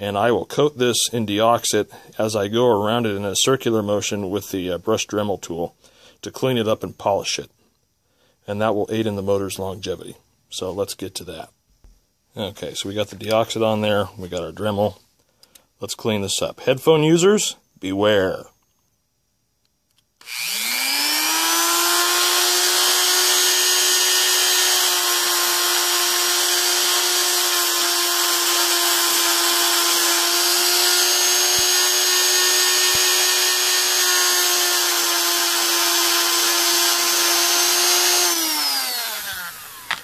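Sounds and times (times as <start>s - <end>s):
rotary tool whining: 20.2s - 40.0s.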